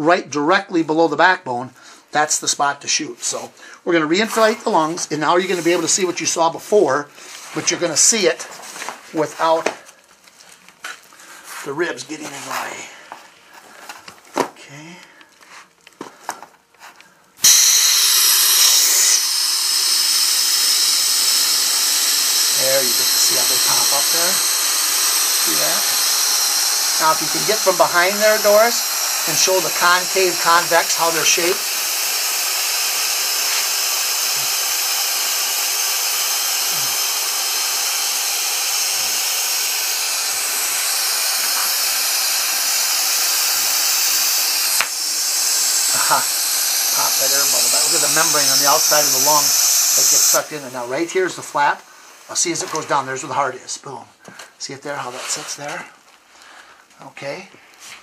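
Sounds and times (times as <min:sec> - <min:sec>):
rush of blown air with whine: 0:04.3 - 0:06.5, 0:17.4 - 0:53.5.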